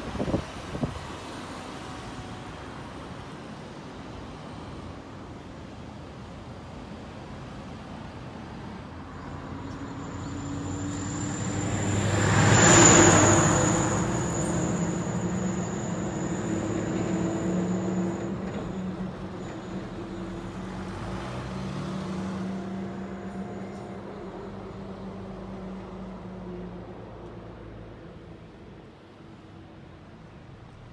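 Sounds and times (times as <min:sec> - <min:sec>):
traffic hum: 0:00.0 - 0:30.9
car passing by: 0:07.7 - 0:29.3.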